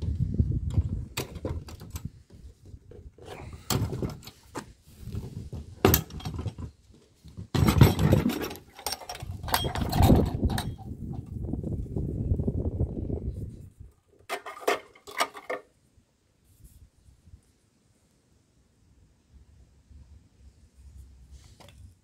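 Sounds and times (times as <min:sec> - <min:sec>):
metal latch clicks and snaps: 0:07.7 - 0:10.9.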